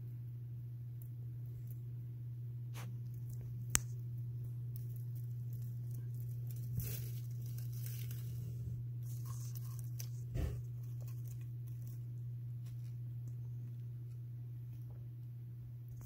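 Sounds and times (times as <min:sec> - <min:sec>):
steady low hum: 0:00.0 - 0:16.0
wood shavings rustling: 0:04.6 - 0:13.4.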